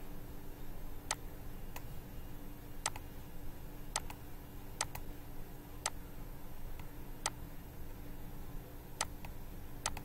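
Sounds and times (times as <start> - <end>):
low steady hum: 0.0 - 10.0
computer mouse clicking: 2.8 - 3.1, 3.9 - 4.2, 4.8 - 5.1, 9.0 - 10.0.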